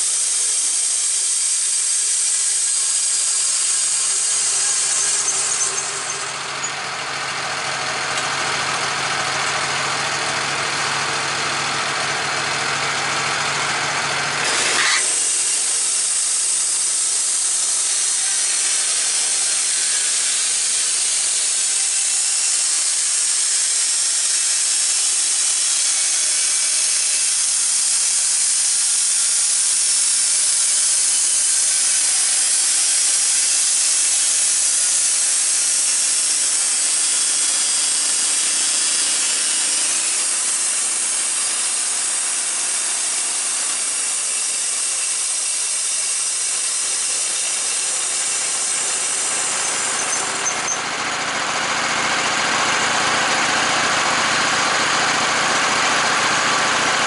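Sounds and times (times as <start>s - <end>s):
bandsaw blade cutting wood: 0.0s - 57.0s
power head humming: 2.2s - 20.7s, 47.0s - 57.0s.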